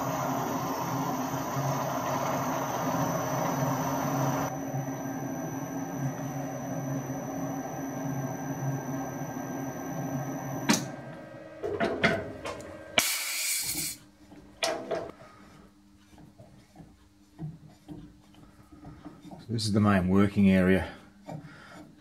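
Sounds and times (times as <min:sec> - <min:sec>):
lathe motor hum and whine: 0:00.0 - 0:11.6
compressed air hiss: 0:13.0 - 0:14.0.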